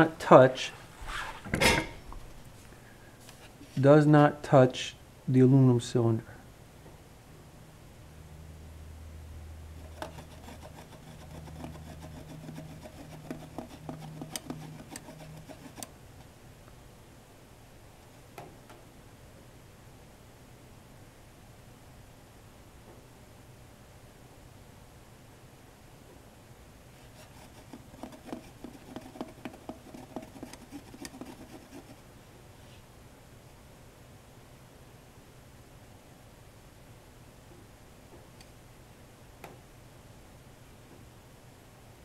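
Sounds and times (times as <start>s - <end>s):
thermometer rubbing and clicking: 9.8s - 16.0s, 27.0s - 32.0s.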